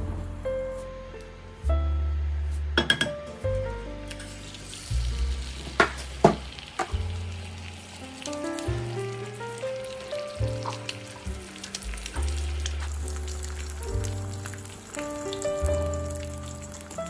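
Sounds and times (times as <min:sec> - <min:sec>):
egg sizzling in oil: 0:04.1 - 0:17.0.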